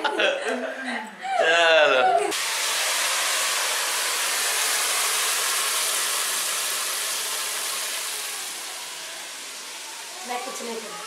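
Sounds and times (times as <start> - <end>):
gas stove cooking hiss: 2.3 - 11.0.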